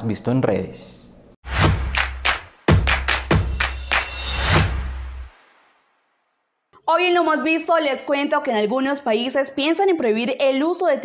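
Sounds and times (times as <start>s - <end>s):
sharp percussive hits: 1.4s - 6.0s
electronic news intro music: 1.4s - 6.2s
deep bass: 1.5s - 5.3s.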